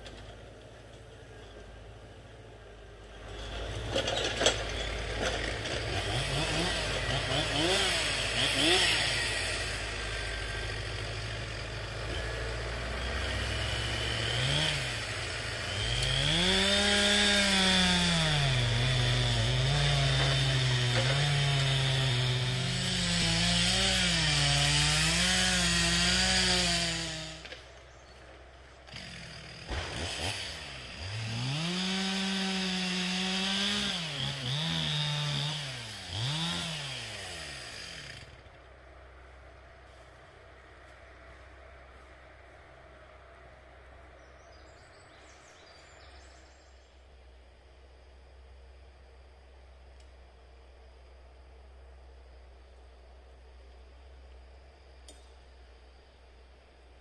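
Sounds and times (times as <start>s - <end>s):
chainsaw cutting into tree trunk: 3.8s - 27.7s, 28.8s - 38.5s.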